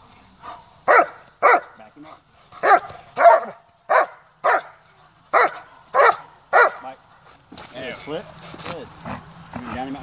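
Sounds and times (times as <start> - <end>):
dog barking: 0.5 - 1.8, 2.6 - 6.9.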